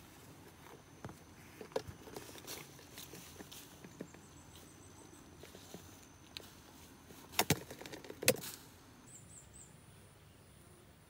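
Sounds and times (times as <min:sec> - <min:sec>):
plastic box clicks and knocks: 0:07.3 - 0:08.4.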